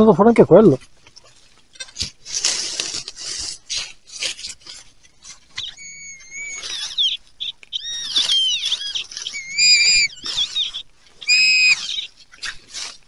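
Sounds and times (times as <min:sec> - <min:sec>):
dry leaves rustling: 0:00.6 - 0:13.0
hand digger scraping soil: 0:01.1 - 0:07.0, 0:07.9 - 0:13.0
high wavering tone: 0:07.8 - 0:11.9.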